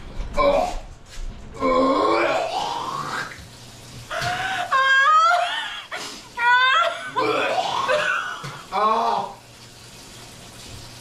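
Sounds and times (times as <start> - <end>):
woman laughing hysterically: 4.1 - 7.2.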